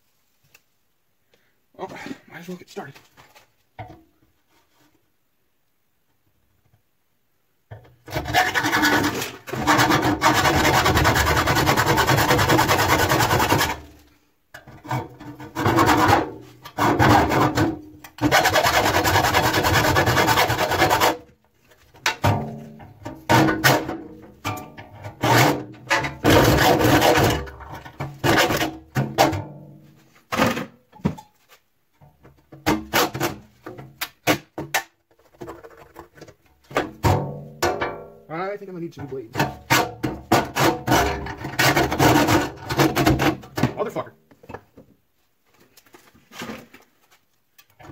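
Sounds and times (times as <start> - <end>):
hacksaw cutting sheet steel: 8.1 - 13.9, 18.2 - 21.2.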